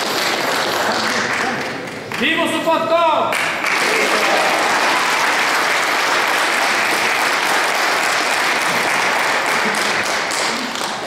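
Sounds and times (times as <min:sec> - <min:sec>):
crowd applauding: 0:00.0 - 0:02.3, 0:03.3 - 0:11.0.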